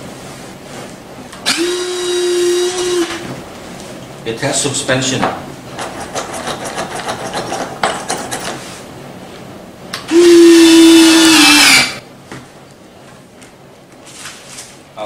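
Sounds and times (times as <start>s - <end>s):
small electric motor whine: 1.5s - 3.2s, 10.1s - 12.0s.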